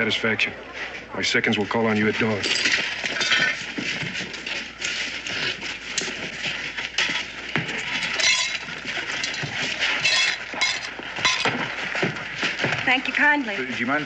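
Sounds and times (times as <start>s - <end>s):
crowd murmur: 0.0s - 2.2s.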